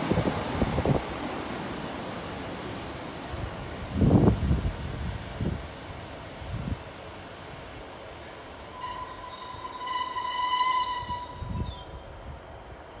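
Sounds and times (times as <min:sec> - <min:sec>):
diesel train rumbling: 0:00.0 - 0:13.0
high-pitched brake squeal: 0:07.8 - 0:12.0.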